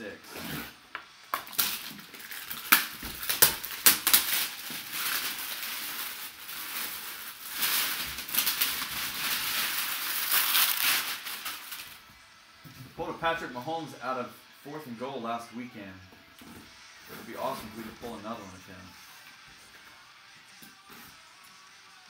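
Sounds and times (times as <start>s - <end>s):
shrink-wrap tearing: 0.3s - 12.0s
plastic crinkling: 1.4s - 12.1s.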